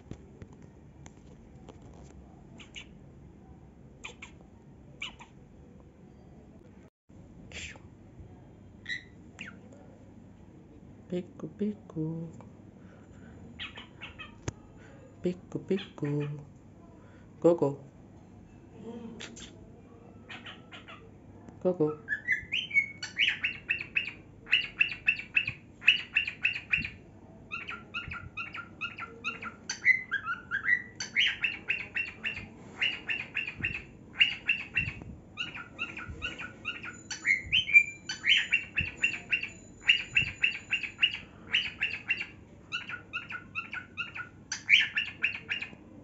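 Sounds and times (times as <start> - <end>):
cockatiel chattering: 2.6 - 3.0, 4.0 - 4.4, 5.0 - 5.4, 13.6 - 14.4, 20.3 - 21.0, 22.1 - 45.7.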